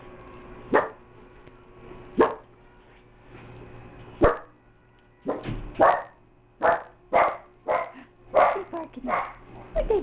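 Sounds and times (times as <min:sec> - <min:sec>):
small dogs barking: 0:00.7 - 0:01.0, 0:02.2 - 0:02.5, 0:04.2 - 0:04.5, 0:05.2 - 0:09.5.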